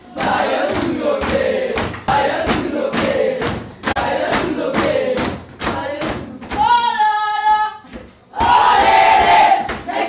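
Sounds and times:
boys chanting: 0.1s - 10.0s
hands slapping a tabletop: 0.2s - 6.7s.

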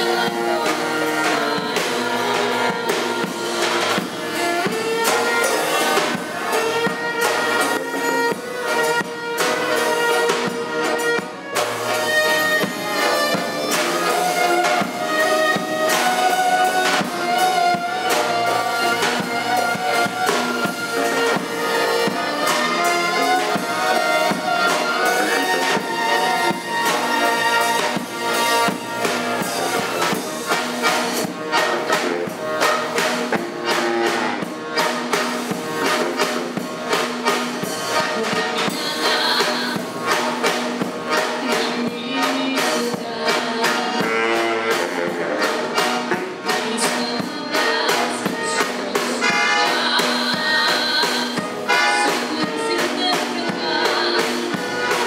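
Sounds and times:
accordion: 0.0s - 55.0s
bowed violin: 0.0s - 55.0s
double bass: 0.0s - 55.0s.

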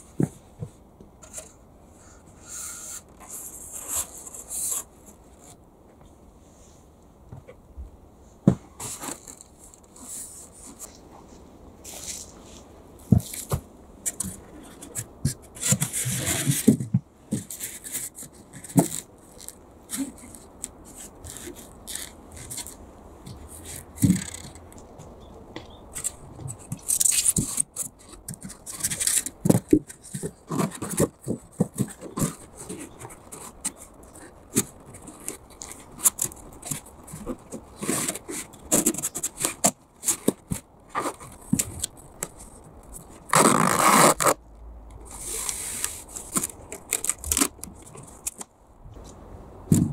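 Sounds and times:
foam boards scraping: 1.2s - 4.9s, 11.9s - 22.7s, 43.1s - 44.4s.

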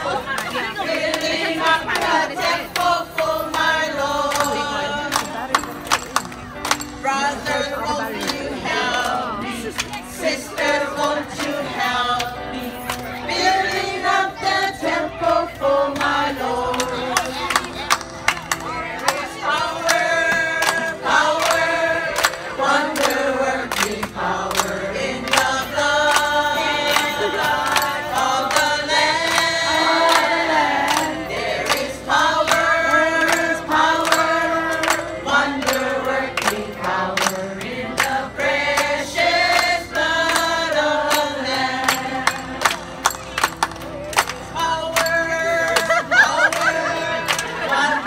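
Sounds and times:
group singing together: 0.0s - 5.7s, 6.9s - 43.2s, 44.4s - 48.0s
keyboard accompaniment: 0.0s - 48.0s.

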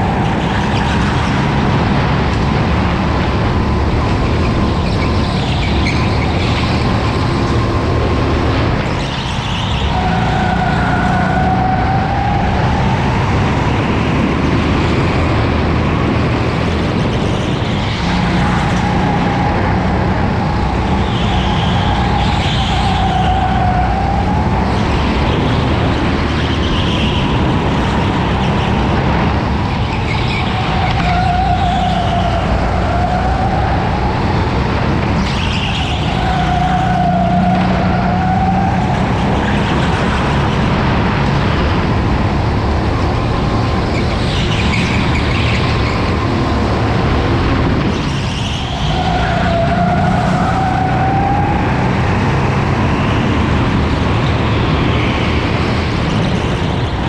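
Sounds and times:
go-kart motor whining: 0.0s - 57.0s
steady rushing noise: 0.0s - 57.0s.

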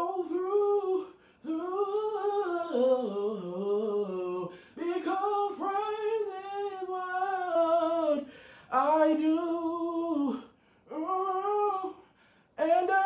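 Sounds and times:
man singing unaccompanied: 0.0s - 13.0s
man breathing in: 4.5s - 4.8s, 8.2s - 8.7s, 12.0s - 12.6s.

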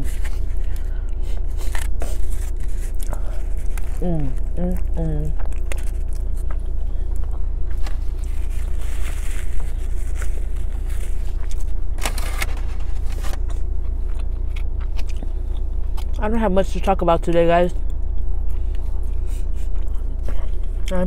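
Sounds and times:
faint steady hum: 0.0s - 21.0s
foil wrapper crinkling: 7.8s - 13.6s.

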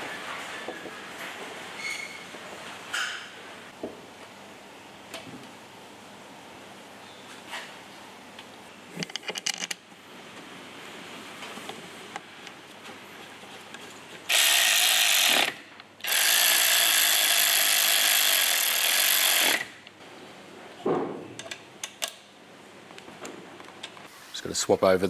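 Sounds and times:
tools and bolts clicking: 9.0s - 9.8s
cordless electric ratchet running: 14.3s - 19.8s.

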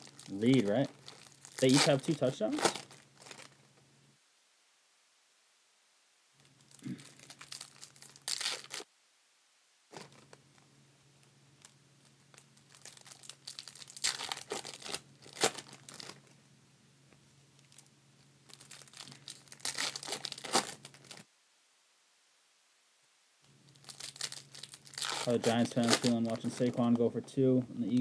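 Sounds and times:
plastic wrappers tearing and crinkling: 0.0s - 3.6s, 6.4s - 8.9s, 11.6s - 16.3s, 17.6s - 21.3s, 23.6s - 27.0s.

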